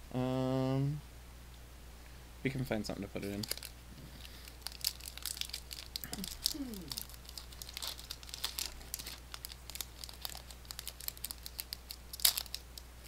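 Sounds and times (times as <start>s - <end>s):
foil wrapper crinkling as torn open: 3.3s - 12.8s.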